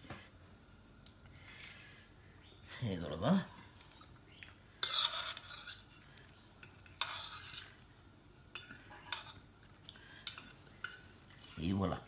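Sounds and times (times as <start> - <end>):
metal utensil scraping ceramic plate: 4.8 - 7.8, 8.5 - 9.4.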